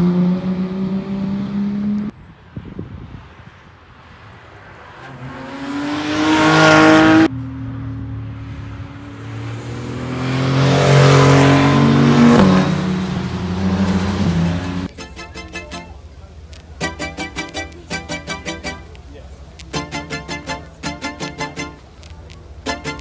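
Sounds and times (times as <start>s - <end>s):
car engine accelerating: 0.0s - 2.1s, 4.7s - 23.0s.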